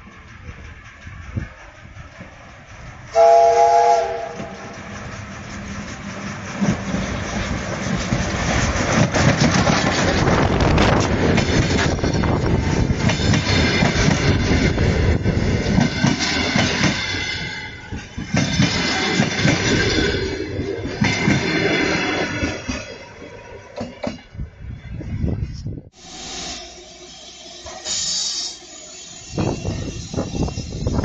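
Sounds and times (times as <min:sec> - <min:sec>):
train wheels clattering: 0:00.0 - 0:20.2
steam locomotive whistle: 0:03.1 - 0:04.8, 0:26.0 - 0:31.0.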